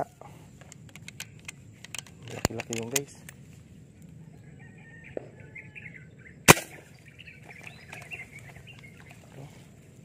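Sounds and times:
birds chirping: 0.0 - 10.0
airgun shot: 6.5 - 6.8.

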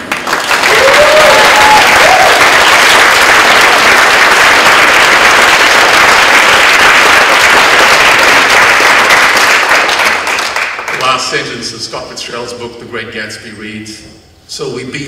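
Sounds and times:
audience applauding: 0.0 - 11.4.

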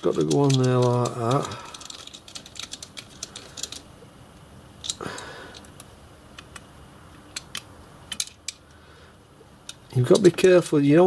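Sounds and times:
metal hand tools clicking: 0.0 - 3.8.

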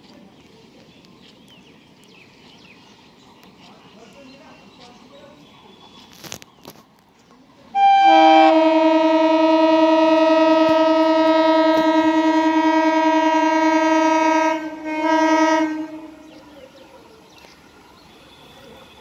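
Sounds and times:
train horn blasts: 7.8 - 16.4.

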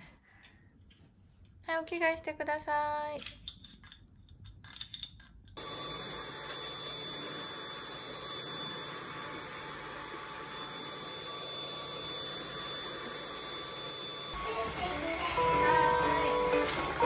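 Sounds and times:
cordless vacuum running: 5.6 - 17.0.

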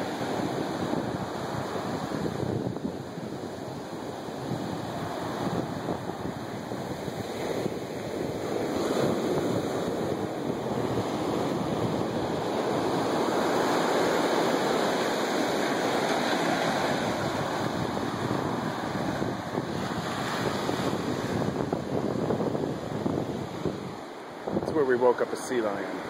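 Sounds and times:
waves breaking on beach: 0.0 - 26.0.

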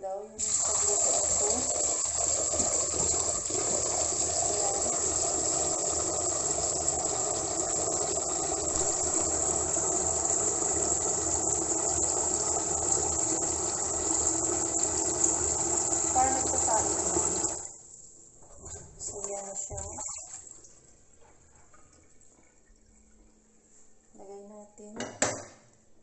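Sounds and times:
grains washed by hand: 0.4 - 17.6
tap running into pot of water: 0.4 - 17.6.

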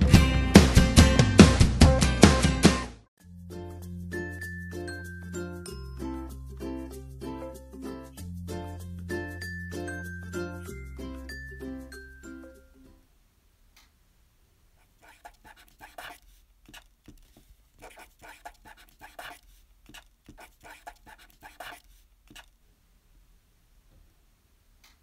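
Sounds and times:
marker scratching on card: 14.8 - 22.5.

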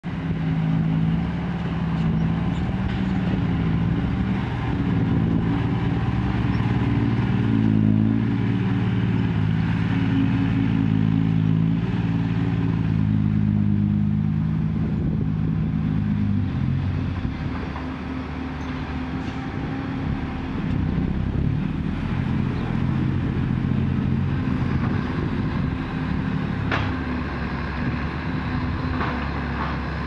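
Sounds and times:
dump truck diesel engine: 0.0 - 30.0.

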